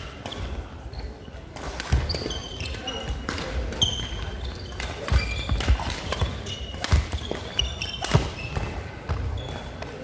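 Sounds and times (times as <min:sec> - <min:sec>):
racket hitting shuttlecock: 0:03.0 - 0:08.8.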